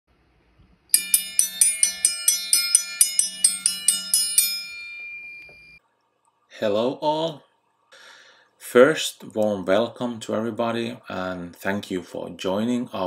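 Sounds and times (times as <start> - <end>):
bell-like struck notes: 0.9 - 5.8.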